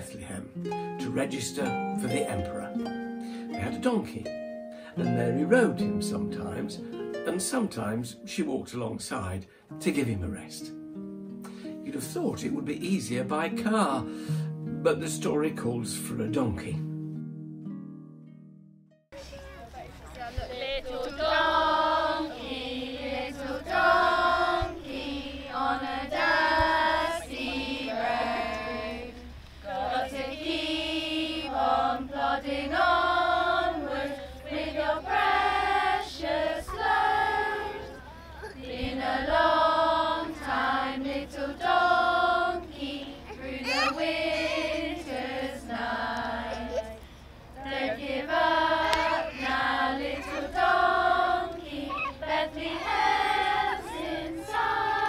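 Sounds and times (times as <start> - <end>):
children and women singing: 20.3 - 55.0.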